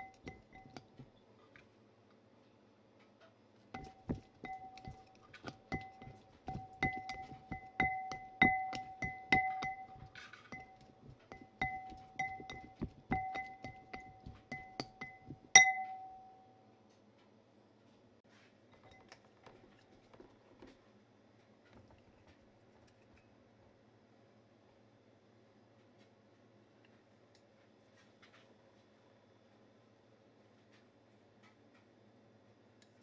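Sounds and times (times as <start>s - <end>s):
glass bowl clinking: 0.0s - 1.1s, 3.8s - 16.4s, 18.8s - 19.2s.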